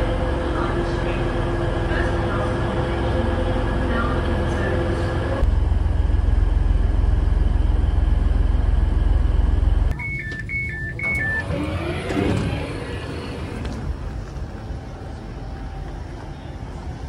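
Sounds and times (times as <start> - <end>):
diesel train rumbling: 0.0 - 17.0
train door warning beeps: 9.9 - 12.6.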